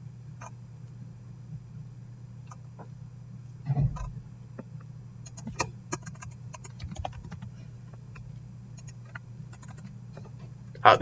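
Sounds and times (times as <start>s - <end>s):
steady low hum: 0.0s - 11.0s
keyboard typing: 5.2s - 7.5s, 8.8s - 9.9s.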